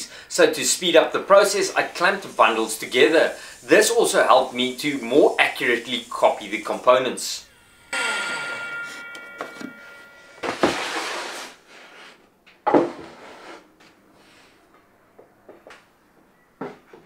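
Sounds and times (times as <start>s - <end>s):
saw blade spinning down: 7.5s - 11.6s.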